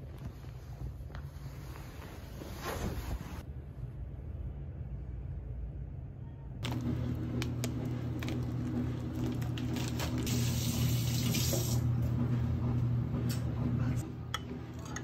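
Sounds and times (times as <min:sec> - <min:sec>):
kitchen tap running: 0:06.6 - 0:11.9.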